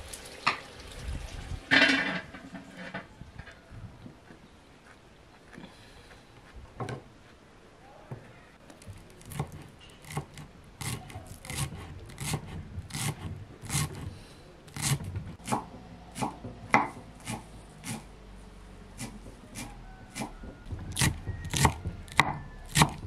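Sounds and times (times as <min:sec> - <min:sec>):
knife chopping on wooden board: 0:08.8 - 0:14.1, 0:14.8 - 0:18.1, 0:19.0 - 0:23.0.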